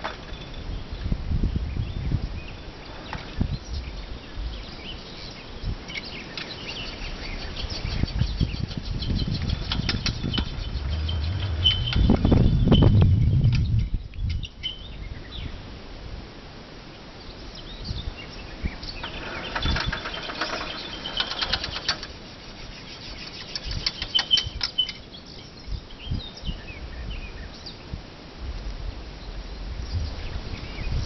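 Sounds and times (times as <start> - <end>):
bird chirps: 1.8 - 15.6, 17.2 - 27.8
metal carriage rattling on rails: 19.0 - 22.2.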